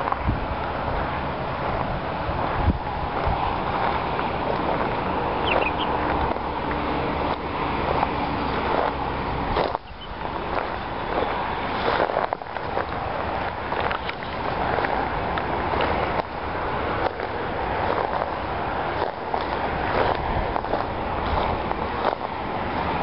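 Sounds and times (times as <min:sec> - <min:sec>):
wind buffeting microphone: 0:00.0 - 0:23.0
bird chirps: 0:05.4 - 0:06.0, 0:09.8 - 0:10.2.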